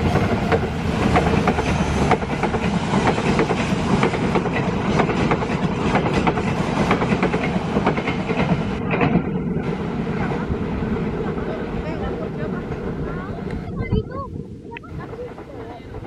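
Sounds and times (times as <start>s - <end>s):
train wheel clicks: 0.0s - 9.4s
passenger train rumbling past: 0.0s - 16.0s.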